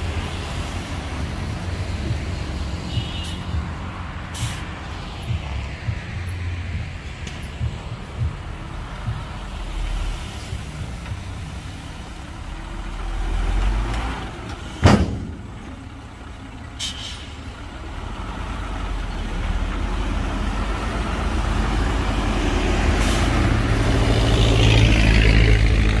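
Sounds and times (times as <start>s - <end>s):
diesel truck engine running: 0.0s - 26.0s
air brake hissing: 4.3s - 4.8s, 16.8s - 17.5s, 23.0s - 23.5s
loud bang: 14.7s - 15.6s.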